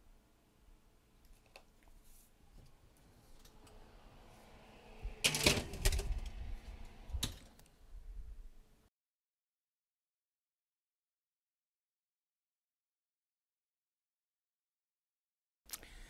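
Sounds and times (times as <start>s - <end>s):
oven door shutting: 5.0s - 6.5s.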